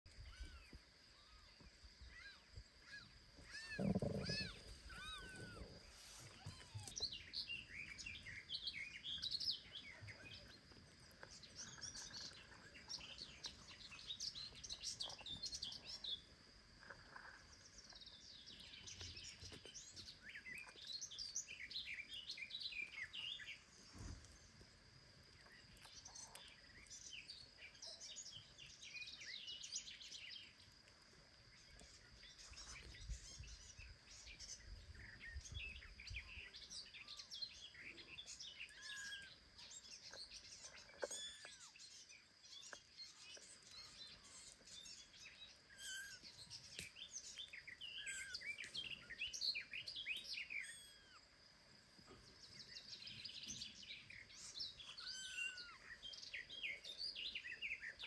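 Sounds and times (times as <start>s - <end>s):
small birds chirping: 0.0s - 58.0s
high insect hum: 0.1s - 58.0s
kitten mewing: 3.4s - 7.0s.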